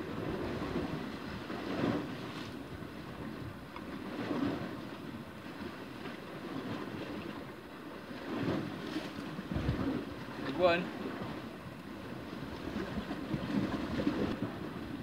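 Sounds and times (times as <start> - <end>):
wind blowing over microphone: 0.0 - 5.0, 8.3 - 15.0
sea water lapping against rocks: 0.0 - 15.0.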